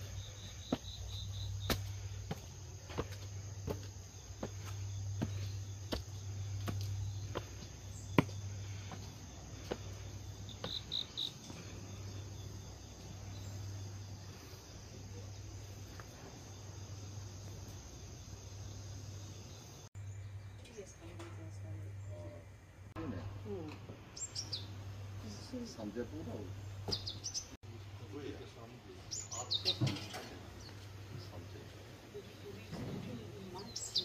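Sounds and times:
footsteps on stone steps: 0:00.0 - 0:14.5, 0:15.6 - 0:16.6
crickets chirping: 0:00.0 - 0:20.5, 0:28.2 - 0:34.0.

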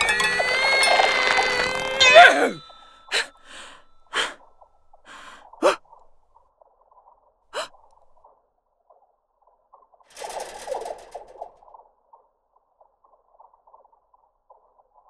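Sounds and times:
person gasping and breathing: 0:00.0 - 0:06.1, 0:07.6 - 0:08.2.

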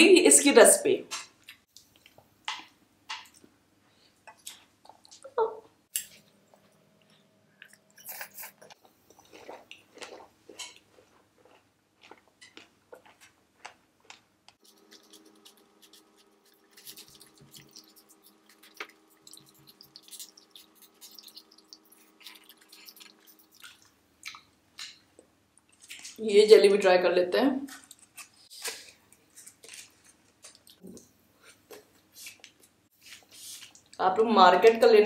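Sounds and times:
chewing soft food: 0:06.0 - 0:26.2.

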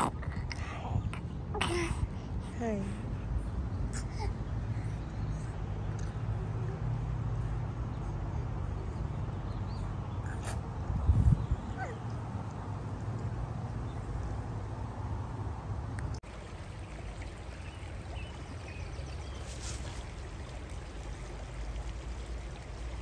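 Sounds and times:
running water rushing: 0:16.2 - 0:23.0.

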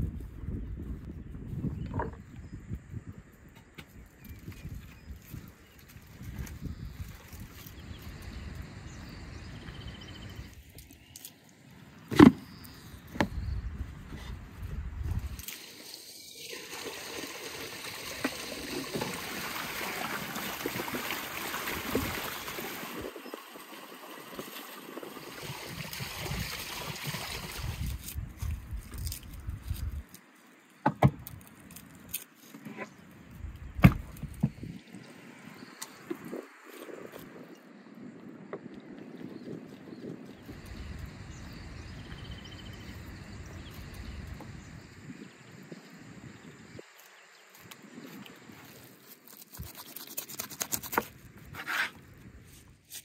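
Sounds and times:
thuds on wooden table: 0:33.8 - 0:34.5.

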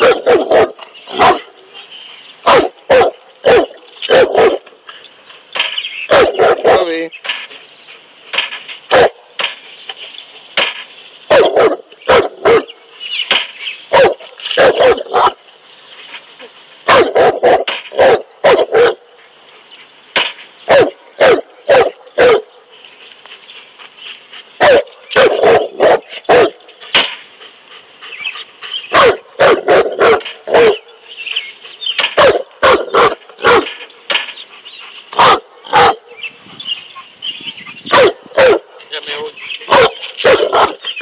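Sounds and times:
dog barking deeply: 0:00.0 - 0:01.6, 0:02.4 - 0:04.7, 0:06.1 - 0:07.0, 0:08.9 - 0:09.2, 0:11.3 - 0:12.8, 0:13.9 - 0:15.4, 0:16.9 - 0:19.1, 0:20.7 - 0:22.5, 0:24.6 - 0:26.6, 0:28.9 - 0:30.9, 0:32.1 - 0:33.8, 0:35.2 - 0:36.3, 0:37.9 - 0:38.8, 0:39.7 - 0:40.8.

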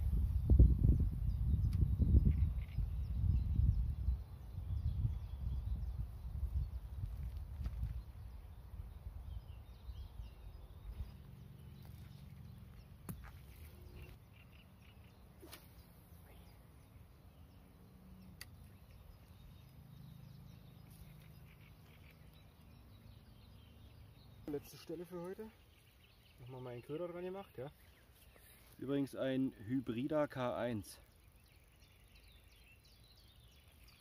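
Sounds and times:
wind rumble on microphone: 0:00.0 - 0:14.2
faint bird calls: 0:02.2 - 0:03.2, 0:07.6 - 0:29.7.

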